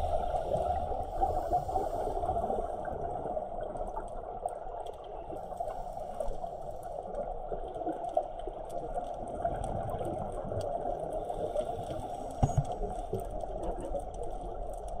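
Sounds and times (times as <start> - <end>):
regulator bubbles gurgling: 0.0 - 15.0
underwater rushing water: 0.0 - 15.0.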